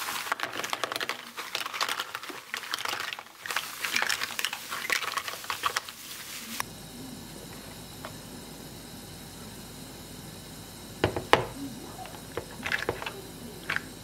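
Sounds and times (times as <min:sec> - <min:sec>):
plastic bag crinkling: 0:00.0 - 0:06.6.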